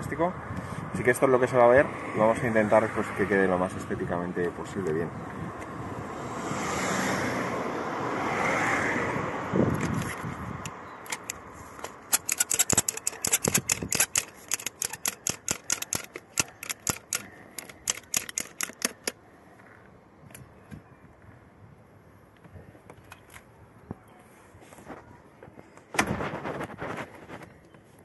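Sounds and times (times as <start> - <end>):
street noise: 0.0 - 28.0
wind: 0.0 - 28.0
rapid sharp clicks: 11.1 - 19.2.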